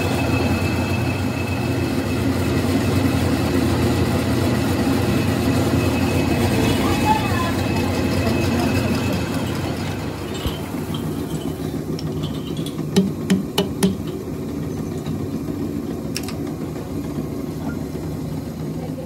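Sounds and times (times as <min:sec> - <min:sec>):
workshop machinery hum: 0:00.0 - 0:19.0
sharp metallic knocks: 0:10.2 - 0:14.3.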